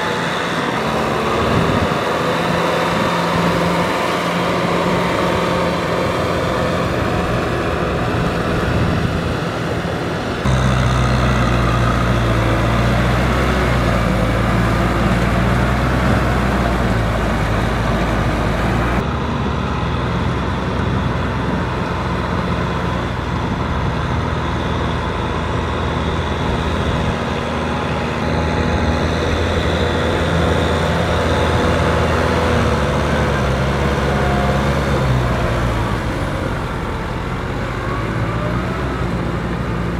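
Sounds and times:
tiller churning wet mud: 0.0 - 8.9
tractor diesel engine running: 0.0 - 39.9.

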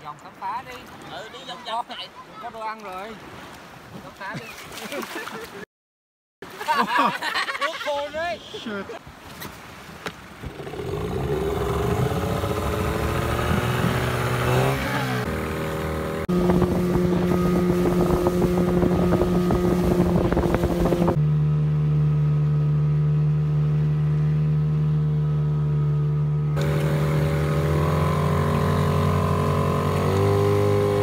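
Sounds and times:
outboard motor running: 10.3 - 31.0.

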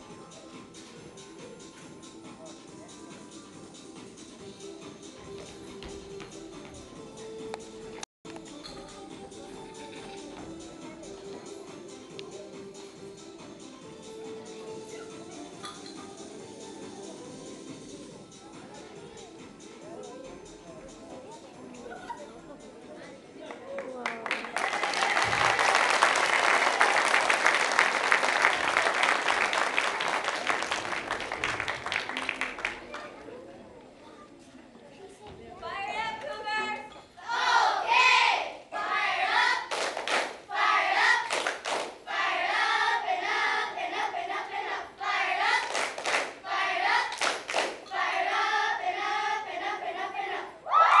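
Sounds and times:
hand claps: 23.5 - 33.1, 39.7 - 40.4, 41.2 - 42.0, 45.6 - 46.4, 47.1 - 47.9
audience applauding: 23.8 - 33.1
children singing: 37.2 - 39.7, 40.5 - 41.3, 42.1 - 50.6.

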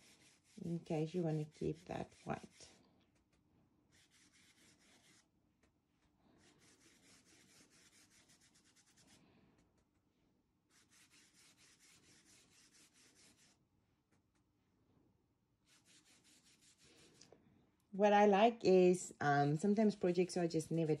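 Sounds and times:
paintbrush scrubbing on fabric: 0.0 - 14.4, 15.6 - 17.2.

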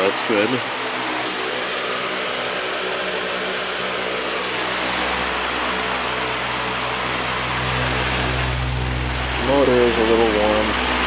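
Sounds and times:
faint motor hum: 0.0 - 11.0
fan air rushing: 0.0 - 11.0
deep low rumble: 5.0 - 11.0.

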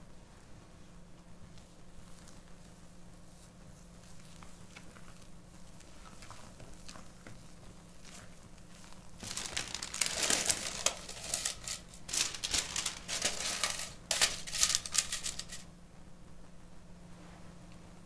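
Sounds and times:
crinkling and crackling: 3.7 - 15.7.

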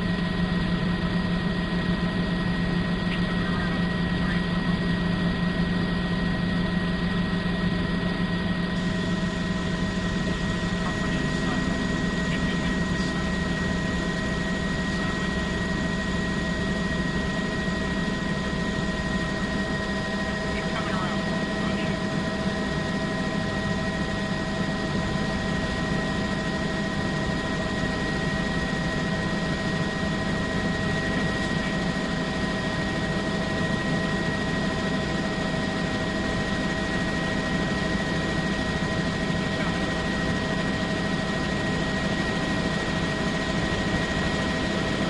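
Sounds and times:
helicopter engine and rotor noise: 0.0 - 45.0.

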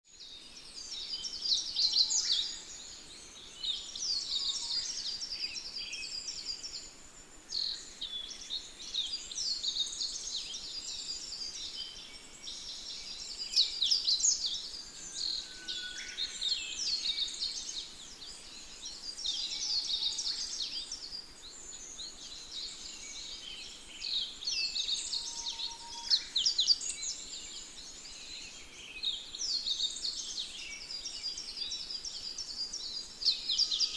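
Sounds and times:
small birds chirping: 0.0 - 33.9.

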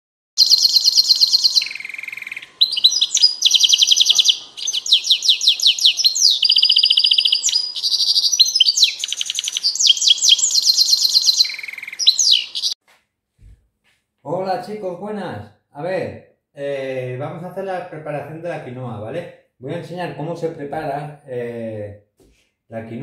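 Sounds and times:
finch song trills: 0.4 - 12.8.

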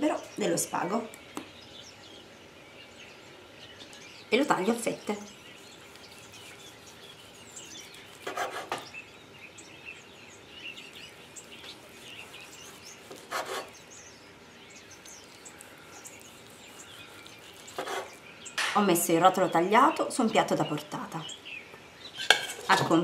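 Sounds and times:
knife sawing through meat: 5.5 - 8.9, 10.9 - 13.8, 15.2 - 18.2.

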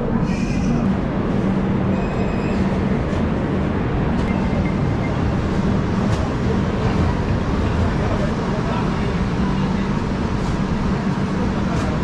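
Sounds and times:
train rumbling: 0.0 - 12.0.

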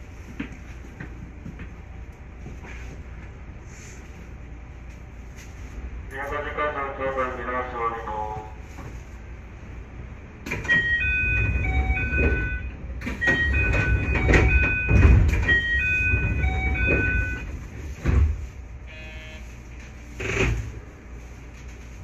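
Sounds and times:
train rumbling at platform: 0.0 - 22.0
sliding doors closing: 10.4 - 18.8, 19.8 - 20.9.

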